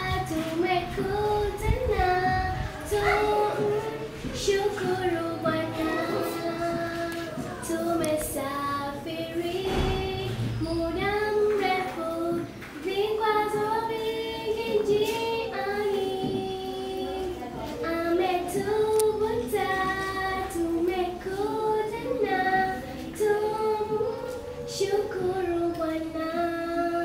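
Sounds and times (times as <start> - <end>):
child singing: 0.0 - 27.0.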